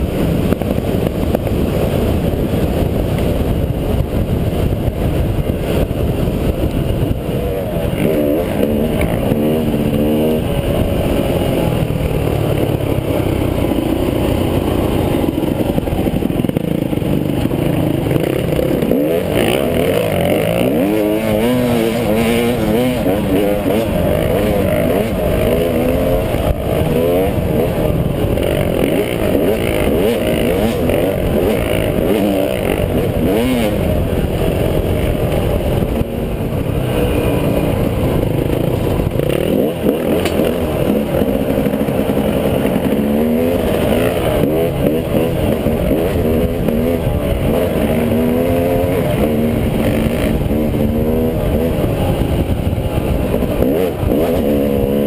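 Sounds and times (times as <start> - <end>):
dirt bike engine revving: 0.0 - 55.0
wind rumble on microphone: 0.0 - 55.0.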